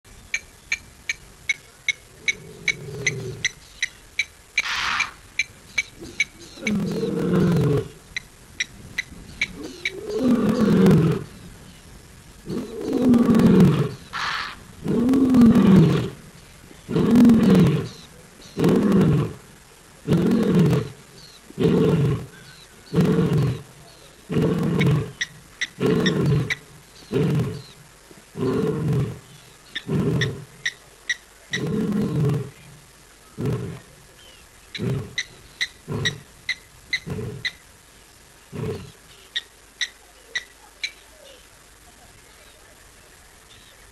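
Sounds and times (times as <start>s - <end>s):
lion roaring and grunting: 6.0s - 8.0s, 9.6s - 11.3s, 12.4s - 16.2s, 16.8s - 19.4s, 20.0s - 21.0s, 21.6s - 25.2s, 25.8s - 30.6s, 31.5s - 32.6s, 33.4s - 33.9s, 34.8s - 35.2s.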